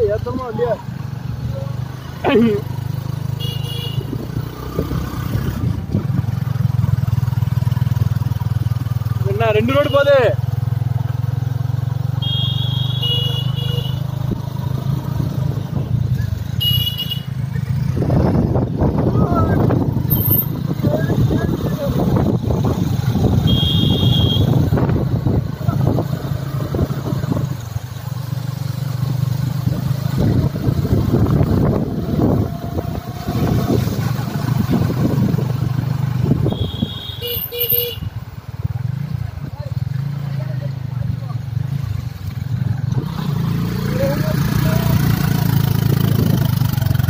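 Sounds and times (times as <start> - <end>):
motorcycle engine running: 0.0 - 47.0
motorcycle horn tooting: 3.4 - 4.2, 9.6 - 10.2, 12.2 - 14.2, 16.6 - 17.4, 23.4 - 24.7, 36.4 - 38.2
wind buffeting microphone: 17.8 - 23.5, 24.4 - 27.6, 30.0 - 36.6.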